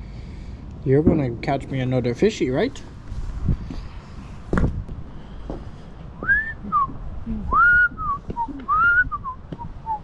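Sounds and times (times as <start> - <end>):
person whistling swooping notes: 6.2 - 10.0.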